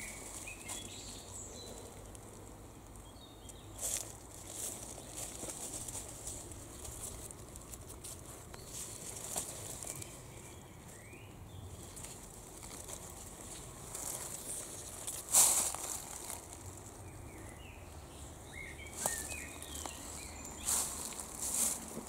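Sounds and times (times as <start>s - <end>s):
leaves rustling: 0.0s - 22.0s
faint bird chirps: 18.5s - 21.7s.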